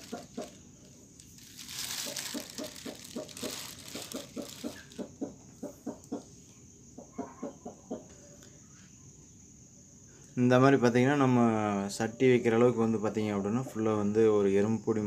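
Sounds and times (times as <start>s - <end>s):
rustling hiss: 0.0s - 5.2s
insect chirring: 0.0s - 15.0s
hen clucking: 1.9s - 6.3s, 7.0s - 8.1s.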